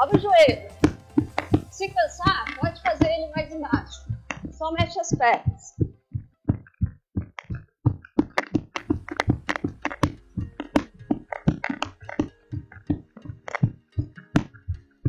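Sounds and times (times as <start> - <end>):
running footfalls on hard floor: 0.0 - 14.9.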